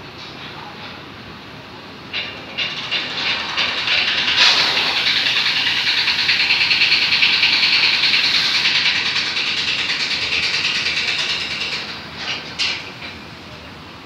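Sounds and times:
motor boat engine throbbing: 2.3s - 12.1s
water rushing hiss: 2.7s - 11.8s.

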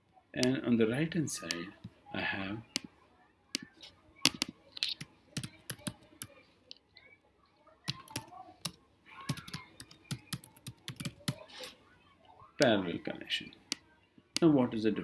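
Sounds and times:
typing on a keyboard: 4.2s - 6.3s, 7.8s - 11.4s.

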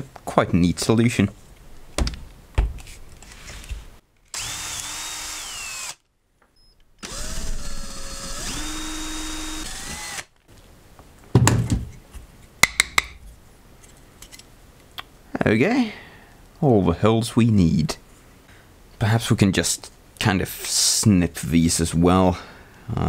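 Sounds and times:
power drill whining: 4.3s - 6.0s, 7.0s - 10.3s.

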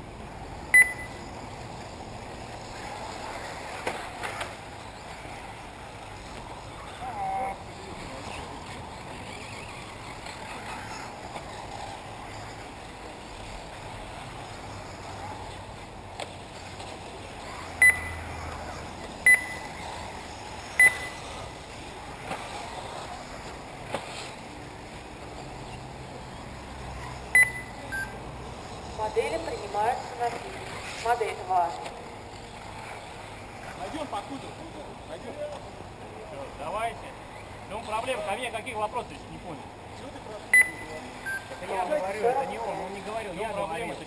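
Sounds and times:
outdoor background noise: 0.0s - 44.0s
short electronic beeps: 0.7s - 1.2s, 17.8s - 18.2s, 19.2s - 19.8s, 20.8s - 21.2s, 27.3s - 28.2s, 40.5s - 41.6s.

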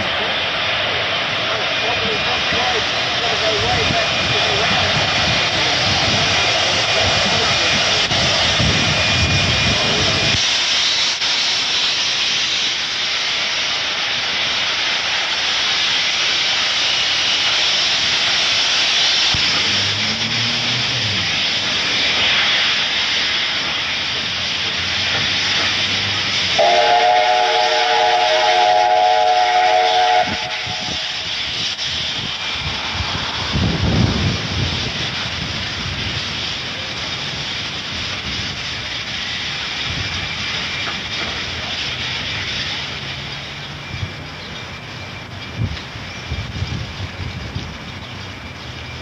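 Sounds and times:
steam locomotive hissing: 0.0s - 49.0s
steam whistle chord: 26.6s - 31.1s.

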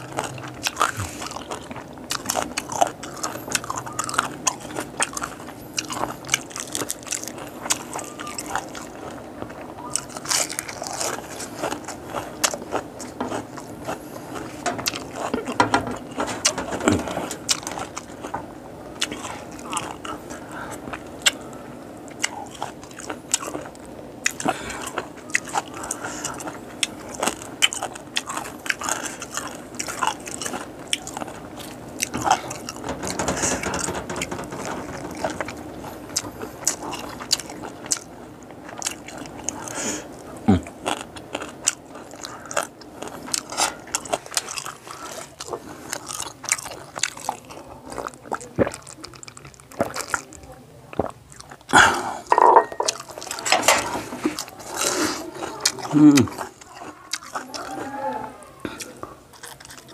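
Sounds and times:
wet chewing with crunches: 0.0s - 59.9s.

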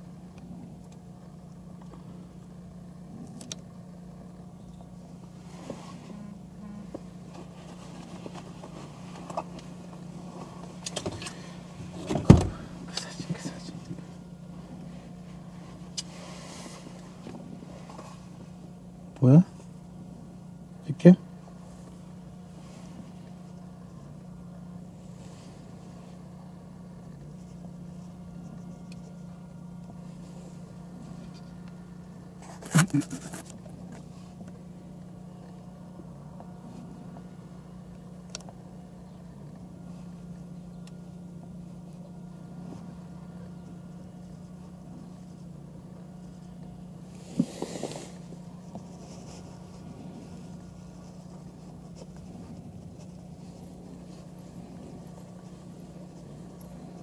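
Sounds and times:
steady low hum: 0.0s - 57.0s
brief rustle: 32.4s - 34.6s.

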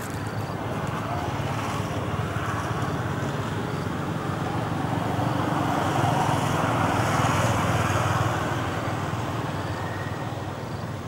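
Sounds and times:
vehicle engine passing by: 0.0s - 10.8s.

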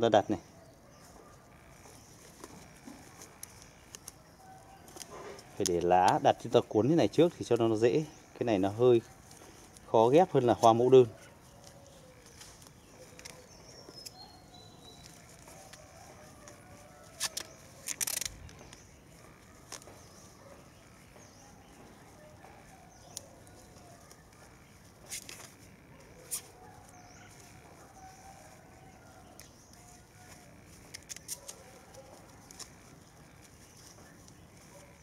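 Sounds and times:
plastic film crinkling: 9.0s - 21.0s, 21.6s - 35.0s.

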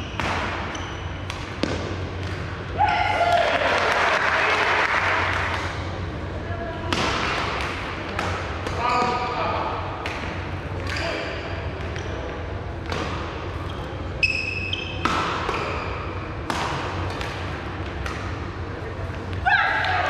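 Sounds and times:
shoe squeak on court floor: 0.0s - 1.2s, 13.7s - 15.0s, 15.6s - 16.1s
racket striking shuttlecock: 15.0s - 18.4s.

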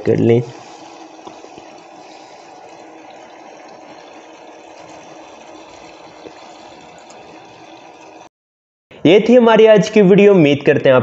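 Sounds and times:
small water pump running: 0.0s - 8.3s
water trickling into basin: 0.7s - 8.3s.

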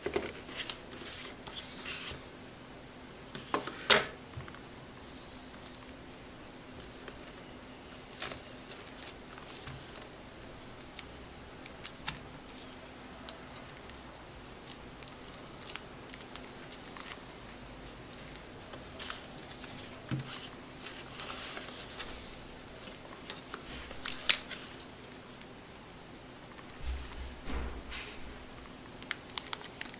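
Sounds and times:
cardboard and plastic rustling: 0.0s - 2.2s, 6.7s - 10.2s, 11.6s - 25.5s, 26.5s - 29.9s
faint steady hum: 0.0s - 29.9s.

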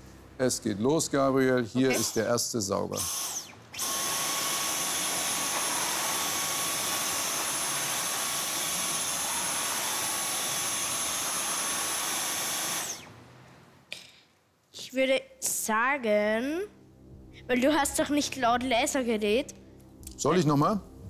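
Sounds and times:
vacuum cleaner running: 1.8s - 2.3s, 2.9s - 13.2s.

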